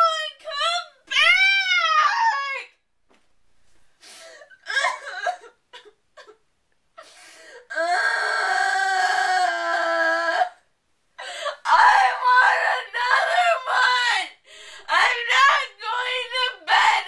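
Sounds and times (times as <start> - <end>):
person crying and wailing: 11.2 - 17.0.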